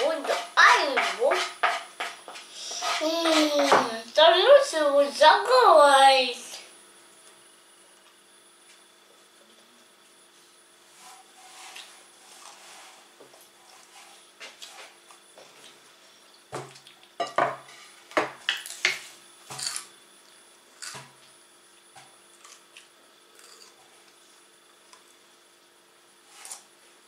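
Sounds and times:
soft scrapes: 10.4 - 15.0.

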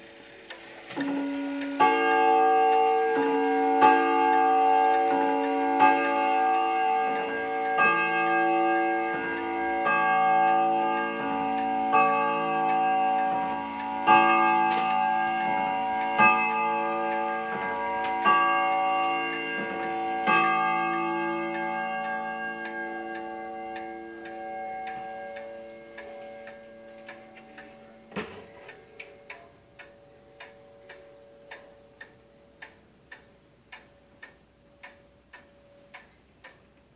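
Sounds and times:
clock striking gongs: 0.0 - 32.7.

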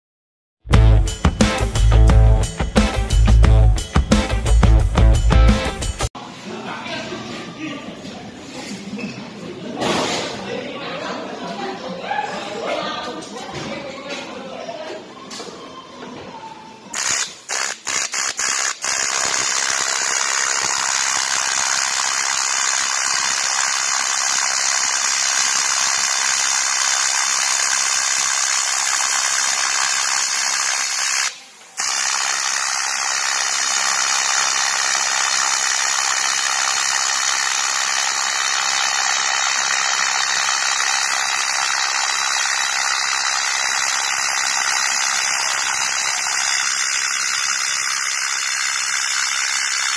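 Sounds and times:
welding arc buzzing: 0.8 - 6.1, 16.9 - 49.9
welding arc strikes: 17.0 - 49.9.

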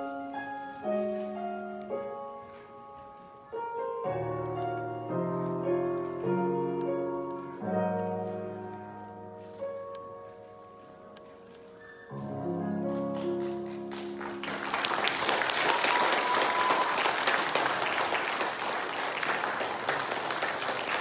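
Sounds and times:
audience applauding: 13.1 - 21.0.

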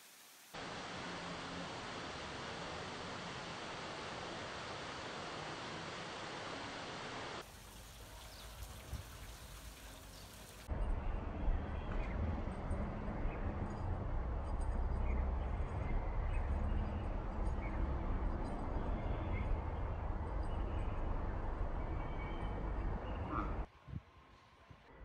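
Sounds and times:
general hiss: 0.0 - 10.7.

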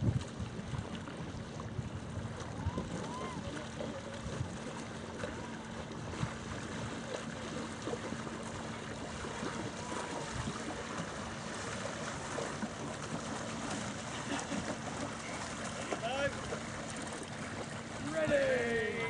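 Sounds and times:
steady low hum: 0.0 - 19.0
water lapping against boat hull: 0.0 - 19.0.

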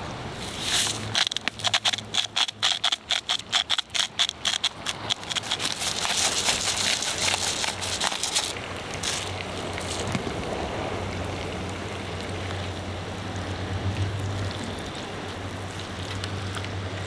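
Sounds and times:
salt and pepper grinders grinding: 0.4 - 10.1.

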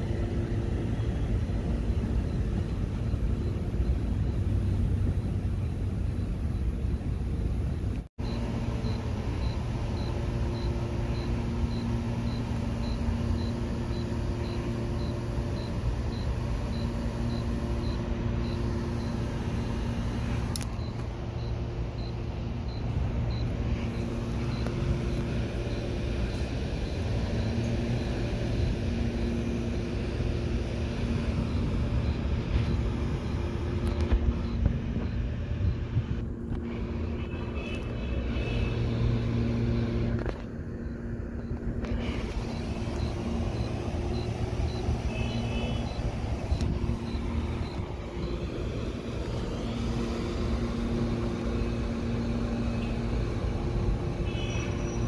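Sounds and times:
train equipment humming: 0.0 - 55.0.

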